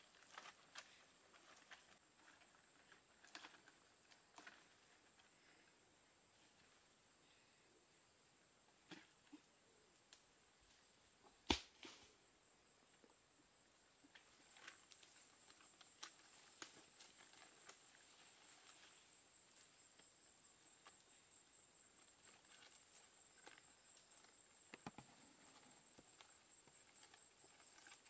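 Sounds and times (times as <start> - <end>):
faint clicks and rustles: 0.0 - 5.5, 14.0 - 28.0
insect trill: 11.9 - 28.0.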